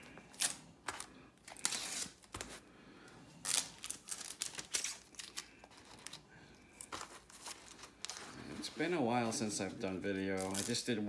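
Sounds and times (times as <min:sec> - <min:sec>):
packaging crinkling and tearing: 0:00.0 - 0:02.6, 0:03.4 - 0:08.9, 0:10.3 - 0:11.0.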